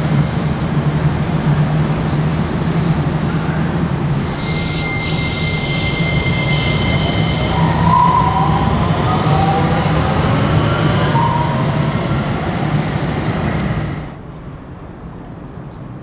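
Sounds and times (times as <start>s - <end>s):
light rail train wheels rumbling: 0.0s - 16.0s
train whining tones: 4.1s - 14.2s.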